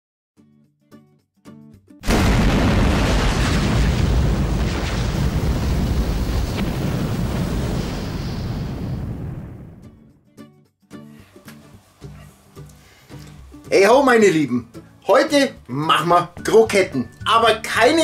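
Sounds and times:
explosion boom with rumble: 0:02.0 - 0:10.0.

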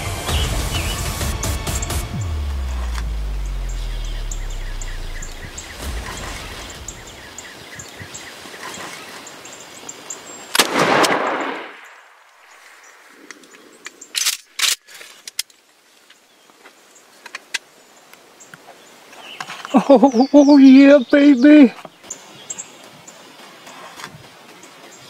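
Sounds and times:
songbirds chirping: 0:00.0 - 0:25.0
shotgun blast echoing: 0:10.6 - 0:12.2.

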